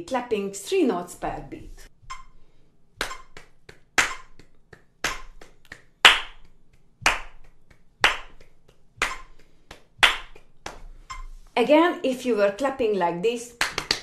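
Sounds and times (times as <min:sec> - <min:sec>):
metronome beeps: 0:02.1 - 0:02.4
hands clapping: 0:03.0 - 0:11.3, 0:13.6 - 0:14.0.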